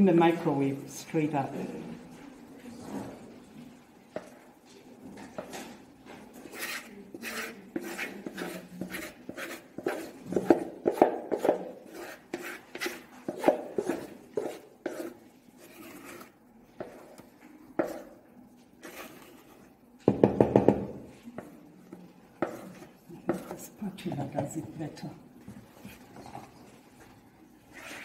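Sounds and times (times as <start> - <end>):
spoon scraping plastic bowl: 5.3 - 18.2, 18.8 - 19.8, 21.3 - 23.8, 27.7 - 28.0
wood knocking on plastic: 20.1 - 21.0.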